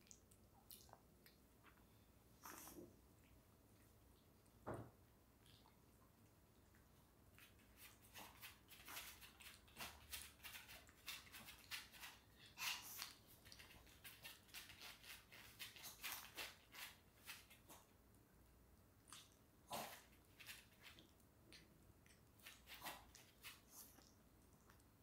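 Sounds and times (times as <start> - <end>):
dog chewing and crunching food: 6.6 - 17.9, 19.1 - 25.0.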